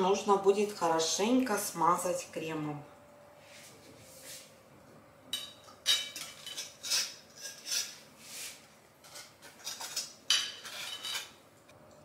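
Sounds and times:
metal spatula scraping glass bowl: 0:05.9 - 0:11.4.

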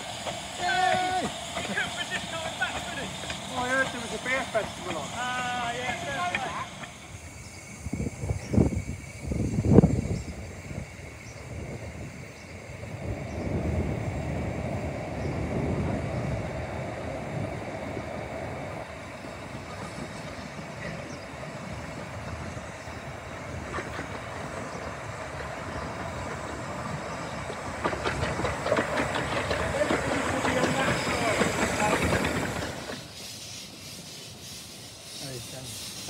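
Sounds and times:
wheels clicking over rail joints: 0:00.0 - 0:07.3, 0:16.1 - 0:33.2
steam train rumbling: 0:00.0 - 0:36.0.

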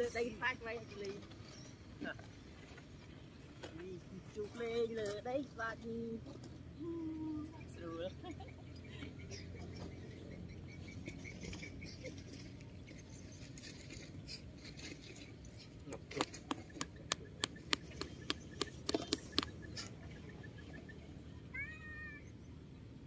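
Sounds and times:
sharp taps: 0:16.2 - 0:19.6.

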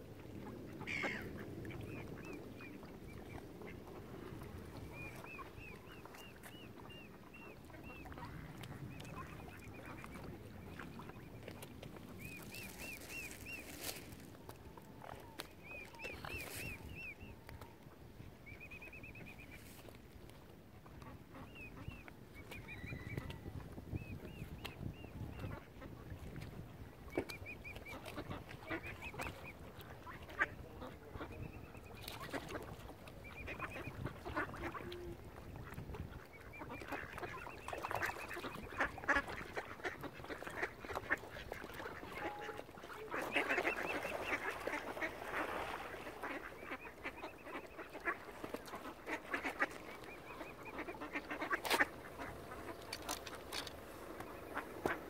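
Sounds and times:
waterbird calls: 0:00.3 - 0:20.0, 0:20.8 - 0:55.0
ducks quacking: 0:00.4 - 0:11.3, 0:12.3 - 0:14.2, 0:27.1 - 0:55.0.

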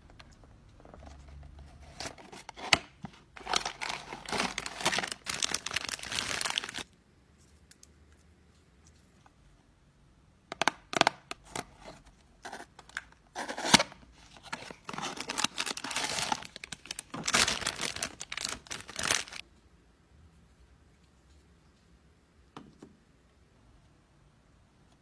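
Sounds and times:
plastic wrapper crinkling: 0:01.9 - 0:06.9, 0:12.8 - 0:19.4.

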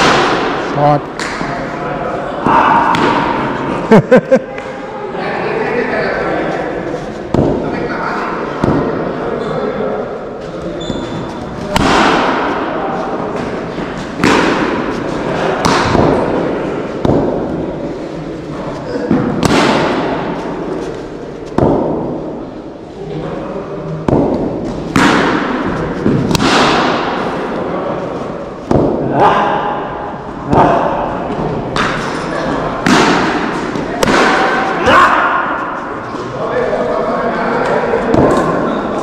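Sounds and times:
cricket bat hitting ball: 0:14.2 - 0:14.9, 0:15.6 - 0:16.4, 0:24.1 - 0:27.2, 0:32.8 - 0:34.7.

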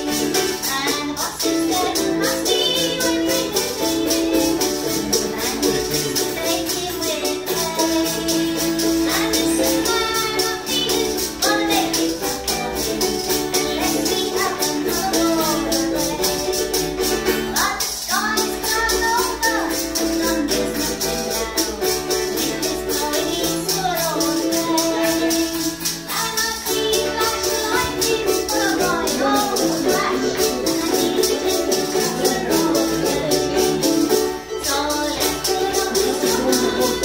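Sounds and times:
hand rattle shaking: 0:00.0 - 0:37.0
strummed charango: 0:00.0 - 0:37.0
woman singing folk song: 0:00.0 - 0:37.0.

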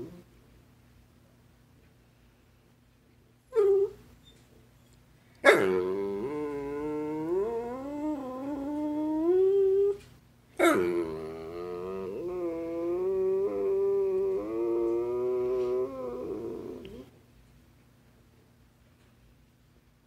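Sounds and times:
dog yipping: 0:03.6 - 0:04.4
dog howling: 0:05.4 - 0:10.0, 0:10.6 - 0:17.1.

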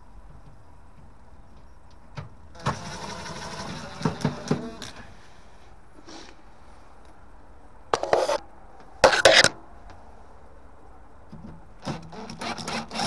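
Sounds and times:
scraping rubs: 0:08.0 - 0:08.4, 0:09.0 - 0:09.5
drill-driver driving screw into metal: 0:09.0 - 0:09.5.

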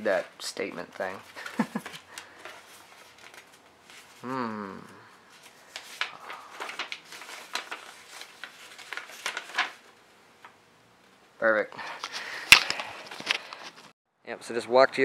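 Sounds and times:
paper rustling and crackling: 0:00.0 - 0:04.2, 0:05.3 - 0:10.5, 0:11.8 - 0:13.9
short falling vocal sound: 0:04.2 - 0:05.0.

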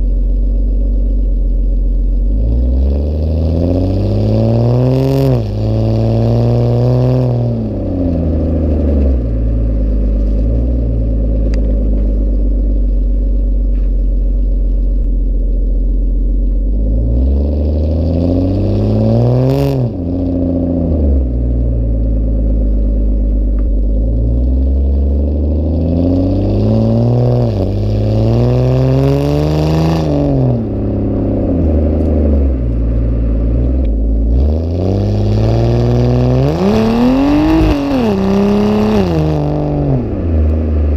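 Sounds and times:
car exhaust revving: 0:00.0 - 0:40.9.

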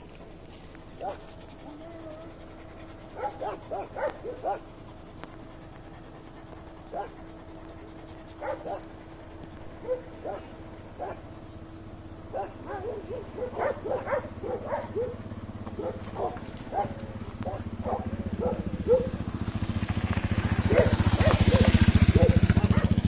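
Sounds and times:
steady low hum: 0:00.0 - 0:23.0
dog whimpering: 0:01.0 - 0:04.6.

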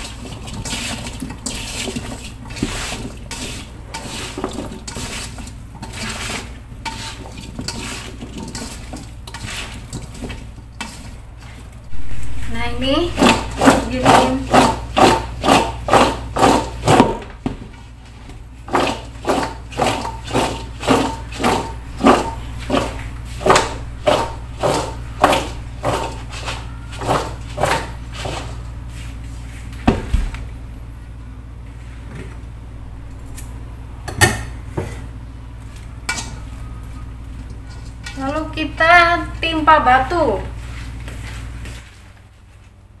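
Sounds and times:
slices tossed in metal bowl: 0:00.0 - 0:17.2, 0:18.7 - 0:28.5.

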